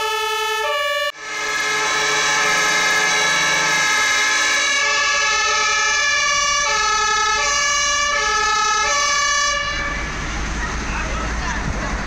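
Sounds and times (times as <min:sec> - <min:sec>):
fire engine sirens: 0:00.0 - 0:12.0.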